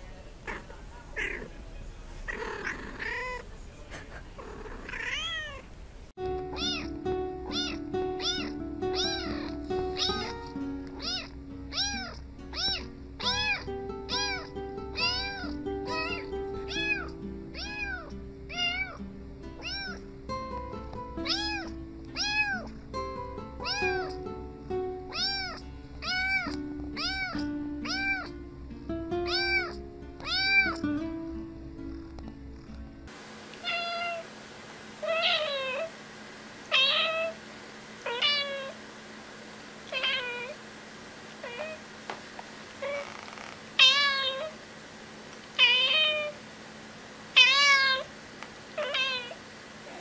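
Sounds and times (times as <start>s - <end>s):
kitten meowing: 4.8s - 5.6s, 6.5s - 19.0s, 19.6s - 20.0s, 21.2s - 22.7s, 23.6s - 24.2s, 25.1s - 28.4s, 29.2s - 30.8s, 33.6s - 34.2s, 36.7s - 37.4s, 39.9s - 40.6s, 43.8s - 44.6s, 47.4s - 48.1s, 48.8s - 49.4s
background music with low notes: 6.2s - 33.1s.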